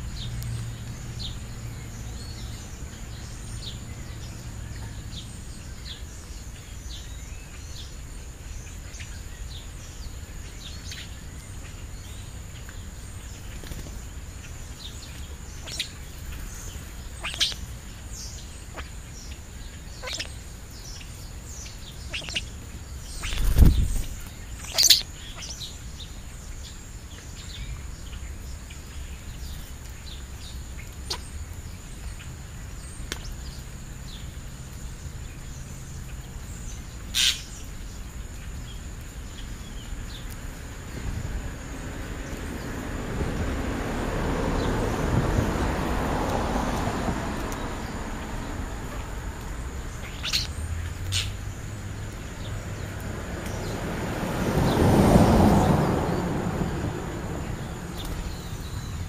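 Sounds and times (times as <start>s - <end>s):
starlings chirping: 0.0s - 43.8s, 44.4s - 59.0s
broad rushing noise: 20.2s - 25.6s, 40.2s - 59.0s.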